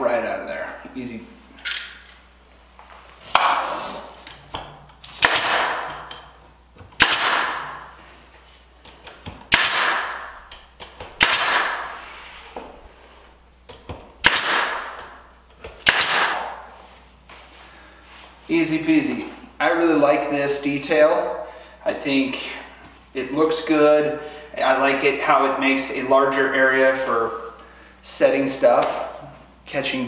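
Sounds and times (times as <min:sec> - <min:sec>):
nail gun firing: 0:05.1 - 0:06.2, 0:07.0 - 0:07.8, 0:09.5 - 0:12.0, 0:14.2 - 0:15.2, 0:15.8 - 0:16.6.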